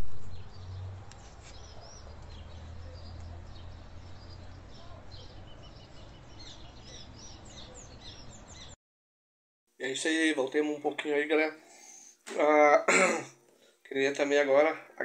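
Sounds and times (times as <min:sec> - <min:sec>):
small birds chirping: 0:00.0 - 0:08.8.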